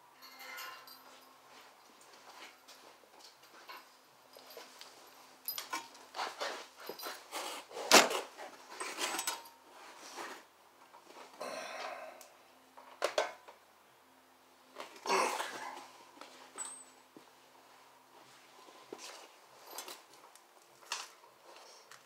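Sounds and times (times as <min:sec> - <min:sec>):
tools and metal parts clinking: 0:00.1 - 0:01.4, 0:03.2 - 0:09.6, 0:16.3 - 0:17.1, 0:19.0 - 0:21.2.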